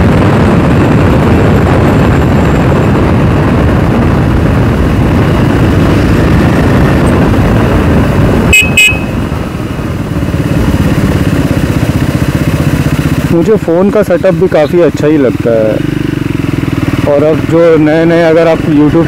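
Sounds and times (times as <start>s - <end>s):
wind and motorcycle engine rumble: 0.0s - 19.0s
horn beeps: 8.5s - 9.2s.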